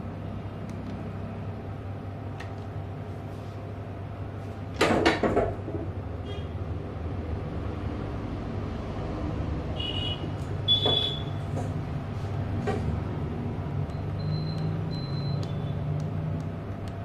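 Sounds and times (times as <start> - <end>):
high electronic beeps: 13.9 - 15.9.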